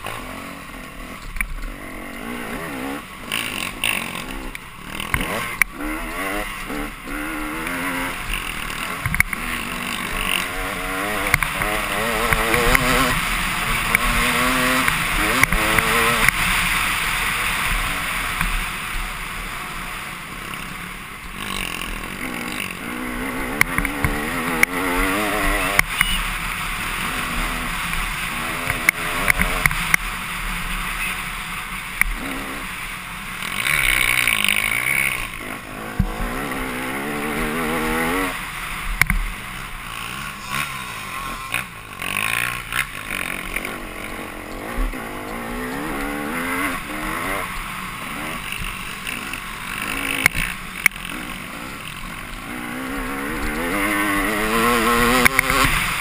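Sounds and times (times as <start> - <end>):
dirt bike engine accelerating: 0.0 - 56.0.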